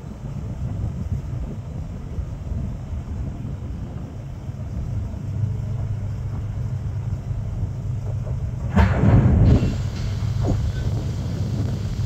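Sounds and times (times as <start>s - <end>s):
heavy equipment engine idling: 0.0s - 12.0s
loud burst of noise: 8.7s - 12.0s.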